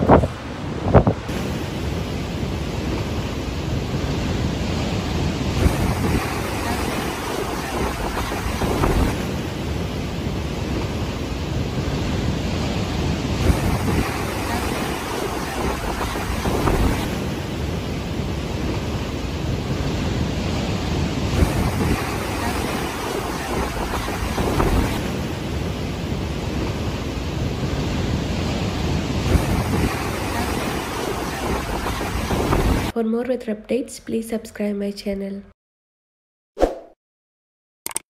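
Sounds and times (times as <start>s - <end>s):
surf breaking on rocks: 0.0s - 33.0s
wind buffeting microphone: 0.0s - 33.0s.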